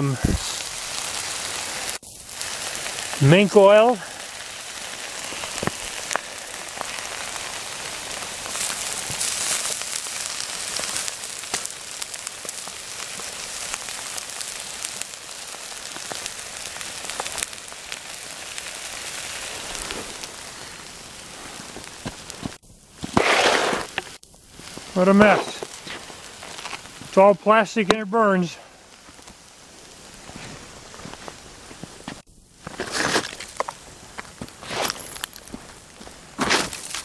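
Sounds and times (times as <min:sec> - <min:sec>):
small crackles and pops: 0:00.0 - 0:27.2, 0:28.7 - 0:37.0
smouldering plastic hissing: 0:00.0 - 0:27.6.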